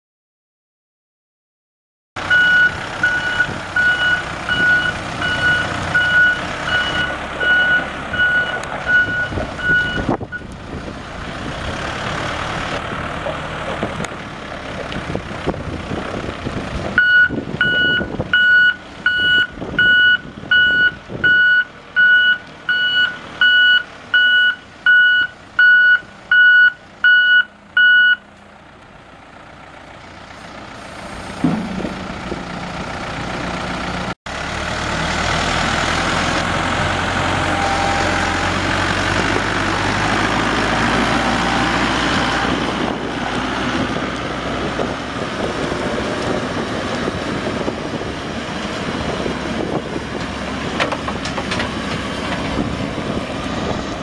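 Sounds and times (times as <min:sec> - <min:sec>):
diesel engine running: 0:02.2 - 0:54.0
reverse alarm beeping: 0:02.3 - 0:10.4, 0:17.0 - 0:28.2.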